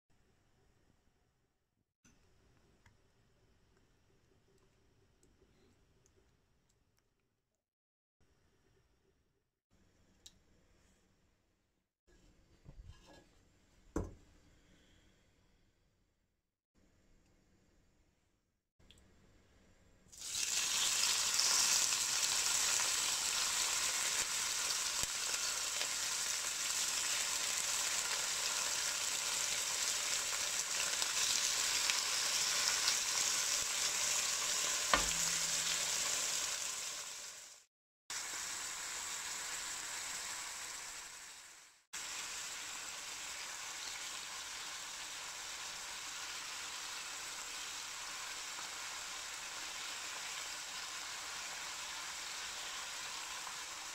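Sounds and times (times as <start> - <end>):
meat sizzling in hot oil: 20.1 - 53.9.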